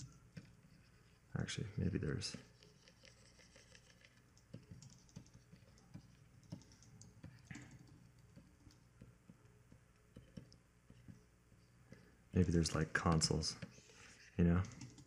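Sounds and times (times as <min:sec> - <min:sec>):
low steady hum: 0:00.0 - 0:15.0
computer clicks: 0:03.1 - 0:08.8.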